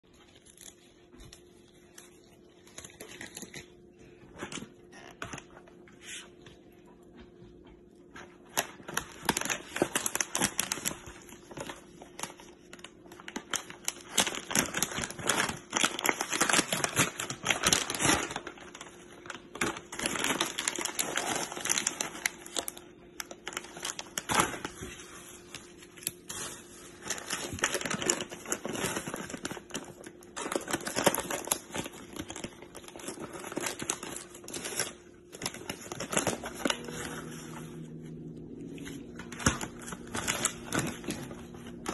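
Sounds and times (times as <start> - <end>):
plastic bag rustling: 8.1 - 41.9
foil pouch crinkling: 8.3 - 37.9, 38.8 - 41.9.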